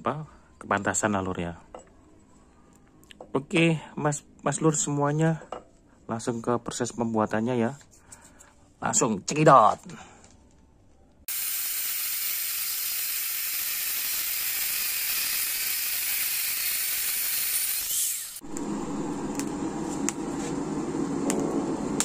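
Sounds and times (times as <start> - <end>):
angle grinder cutting steel: 11.3 - 18.4.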